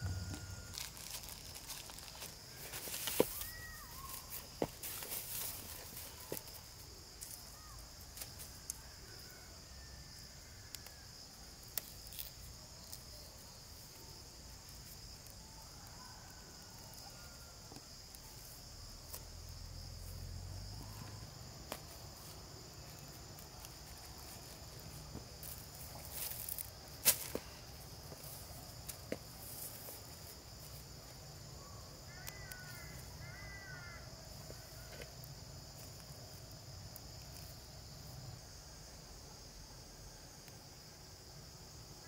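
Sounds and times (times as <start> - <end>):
insects chirring: 0.0 - 42.0
plastic film rustling: 0.6 - 6.2.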